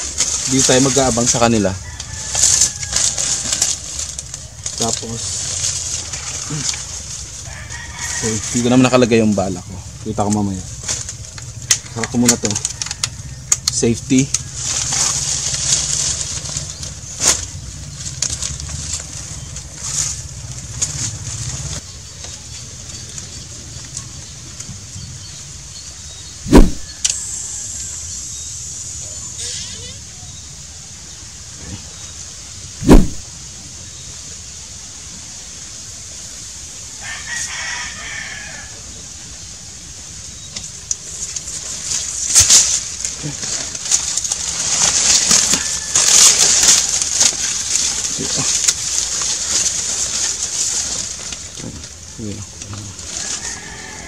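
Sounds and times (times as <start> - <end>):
rustling: 0.0 - 24.9, 26.2 - 28.0, 31.6 - 33.9, 39.9 - 54.0
steady high hiss: 0.0 - 54.0
rooster crowing: 1.0 - 3.7, 6.0 - 9.1, 12.4 - 13.7, 36.9 - 39.1, 45.1 - 47.7, 53.0 - 54.0
steady low hum: 22.4 - 29.1.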